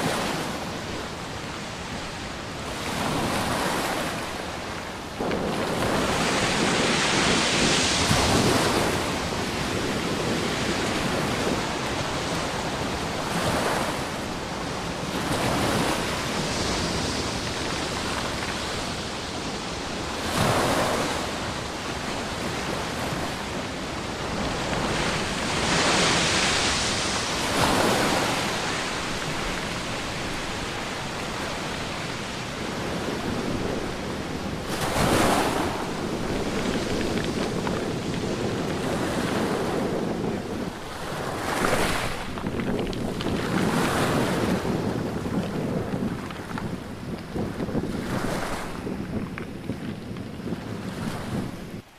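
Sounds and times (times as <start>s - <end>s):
ocean surf on beach: 0.0s - 51.9s.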